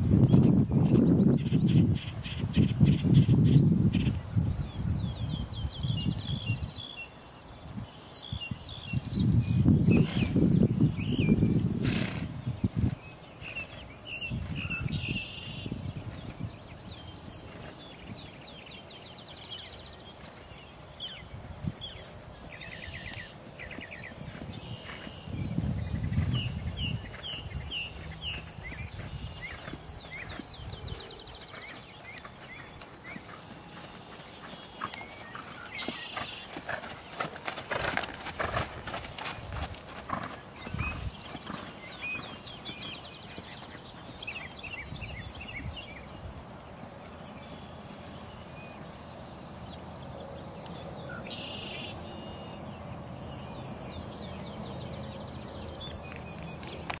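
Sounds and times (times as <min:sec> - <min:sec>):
birds chirping: 0:00.0 - 0:57.0
horse hoofbeats on grass: 0:23.3 - 0:45.8.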